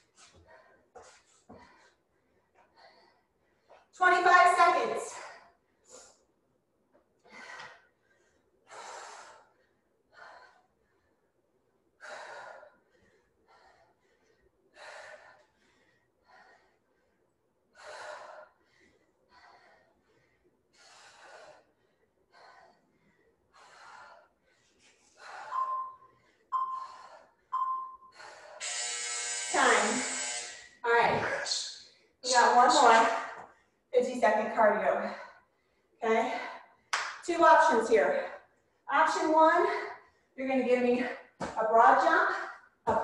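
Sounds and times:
short beeps: 25.5s - 26.9s, 27.5s - 28.1s.

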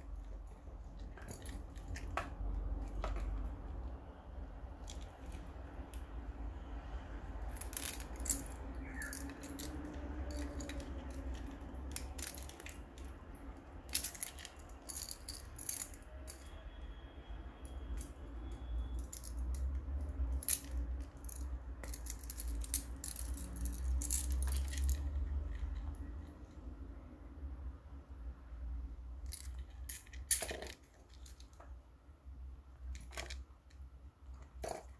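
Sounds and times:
metal ball chain rattling: 0.0s - 3.5s, 7.4s - 16.7s, 17.7s - 26.3s, 29.2s - 31.6s, 34.6s - 34.9s.

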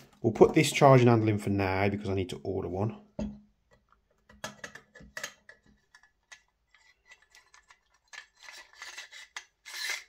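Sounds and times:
metal clicks and scrapes: 4.7s - 10.0s.

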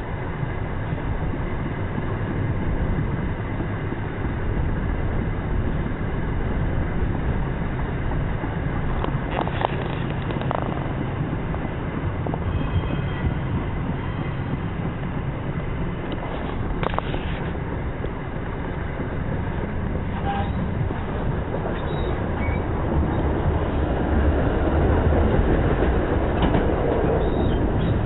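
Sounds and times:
train wheels rumbling on rail: 0.0s - 28.0s
rushing air: 13.2s - 28.0s.

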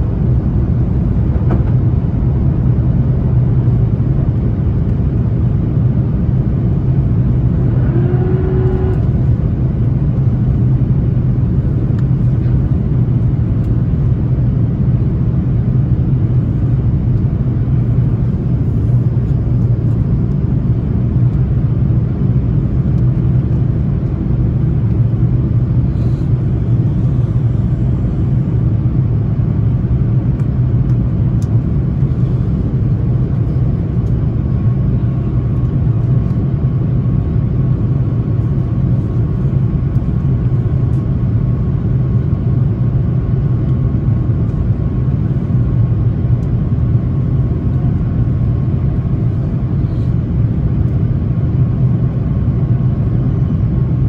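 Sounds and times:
aircraft engines droning: 0.0s - 54.0s
airflow noise: 5.3s - 13.3s, 24.8s - 29.0s.

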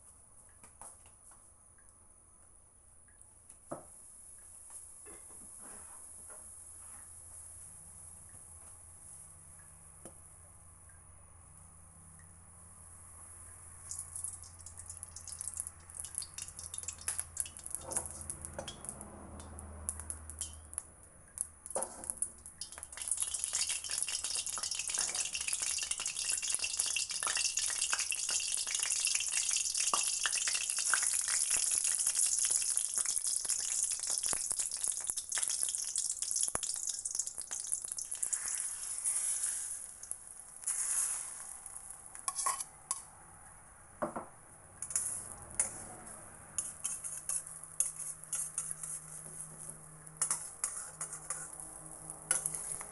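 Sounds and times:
hot oil sizzling and spattering: 13.8s - 19.0s, 21.4s - 42.6s, 46.6s - 49.3s, 50.2s - 51.6s, 52.2s - 52.9s.

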